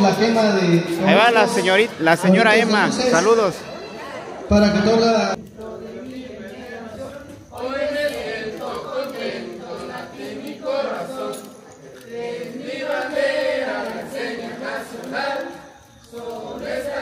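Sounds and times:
group singing in unison: 5.4 - 17.0.

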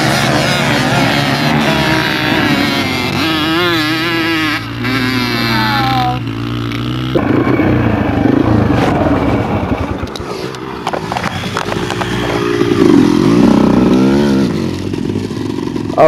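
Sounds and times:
dirt bike engines revving: 0.0 - 16.0
loud rushing noise: 7.1 - 14.4.

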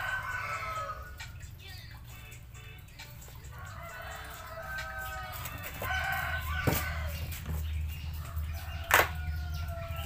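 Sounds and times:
chickens calling: 0.0 - 2.2, 2.8 - 10.0.

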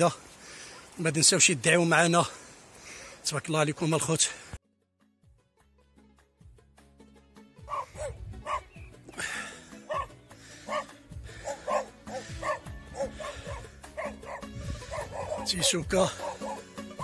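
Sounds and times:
background music: 4.0 - 17.0
dog barking: 7.6 - 8.8, 9.9 - 10.1, 10.7 - 16.7.

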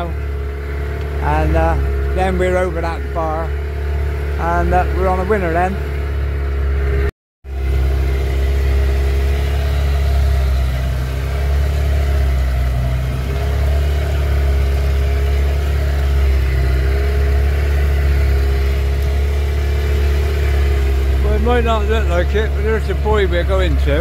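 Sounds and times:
outboard motor running: 0.0 - 24.0.

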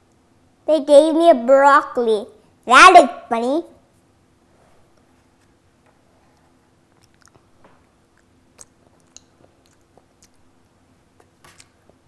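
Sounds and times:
child chewing chocolate crunching: 6.3 - 12.0.

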